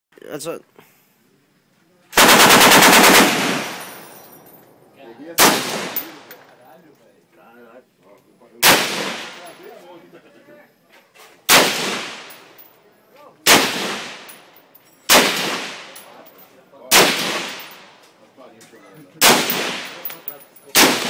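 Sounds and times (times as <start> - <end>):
rifle shots echoing: 2.2 - 3.9, 5.4 - 6.4, 8.6 - 9.5, 11.5 - 12.6, 13.4 - 14.5, 15.1 - 16.2, 16.9 - 17.9, 19.2 - 21.0.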